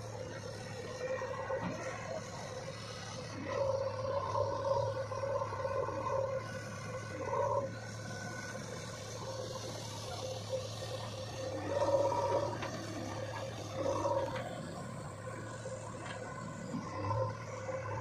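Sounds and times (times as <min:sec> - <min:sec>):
diesel engine running: 0:00.0 - 0:18.0
machine whining: 0:00.0 - 0:18.0.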